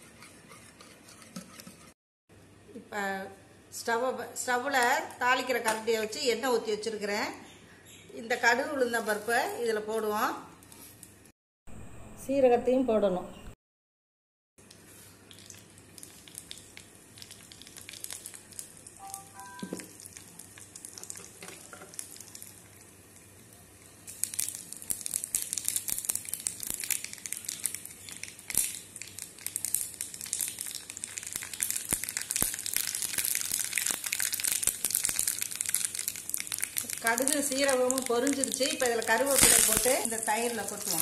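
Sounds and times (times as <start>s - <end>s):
seeds crackling in hot oil: 14.6s - 41.0s.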